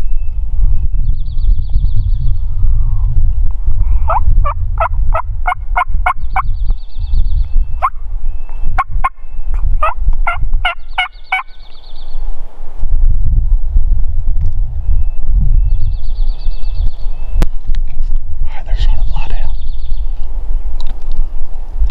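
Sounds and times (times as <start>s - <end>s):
wind rumbling on microphone: 0.0s - 21.9s
wild turkeys calling: 9.8s - 11.8s.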